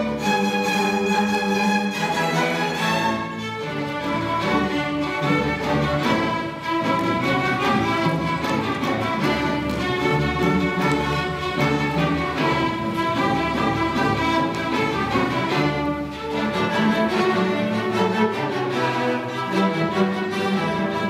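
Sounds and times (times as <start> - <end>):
string orchestra playing: 0.0 - 21.0.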